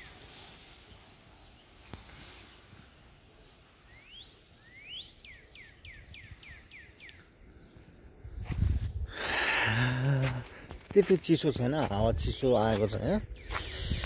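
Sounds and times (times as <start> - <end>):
songbird singing: 0.0 - 14.0.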